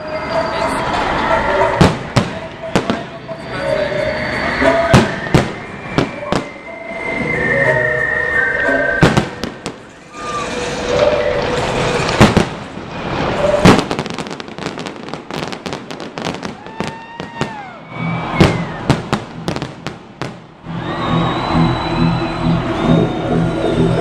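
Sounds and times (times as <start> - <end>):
fireworks crackling: 0.0 - 6.7, 9.0 - 20.7
whistling fireworks: 0.0 - 24.0
fireworks bangs: 0.7 - 6.7, 9.0 - 20.7
music with steady beat: 4.6 - 9.9, 18.0 - 24.0.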